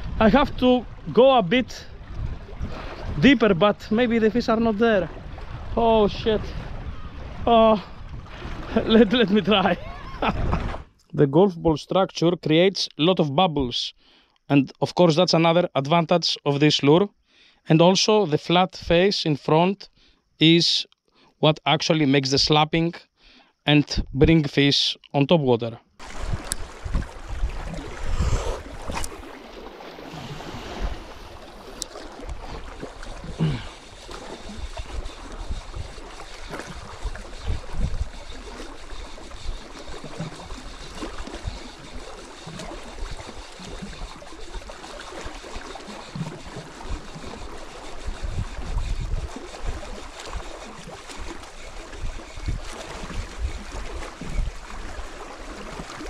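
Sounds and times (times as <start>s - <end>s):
wind buffeting microphone: 0.0s - 10.9s, 26.0s - 55.2s
waves lapping on rocks: 26.0s - 56.0s.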